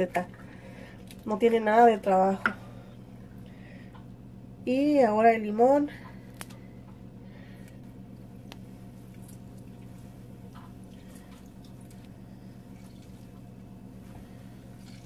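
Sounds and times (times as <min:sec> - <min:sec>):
low electrical hum: 0:00.0 - 0:15.0
lemon squishing: 0:08.4 - 0:13.6.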